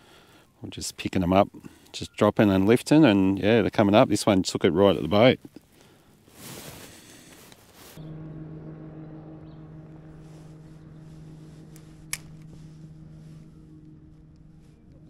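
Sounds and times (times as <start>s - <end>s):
boat motor humming: 8.0s - 15.0s.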